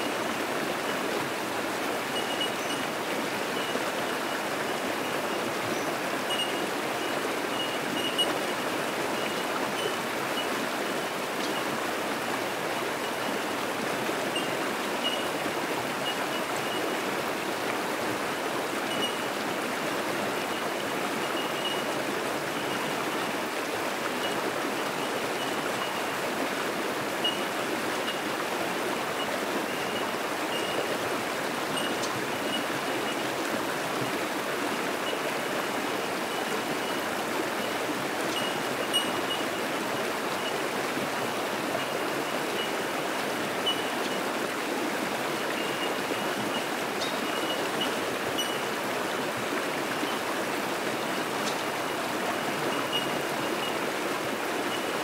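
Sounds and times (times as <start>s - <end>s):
water rushing over rocks: 0.0s - 55.0s
bellbirds tinking: 2.2s - 8.6s, 9.2s - 10.5s, 18.8s - 19.3s, 20.5s - 21.9s, 29.6s - 31.0s, 31.8s - 32.7s, 38.3s - 39.6s, 43.6s - 44.2s, 45.5s - 48.7s, 52.7s - 53.8s.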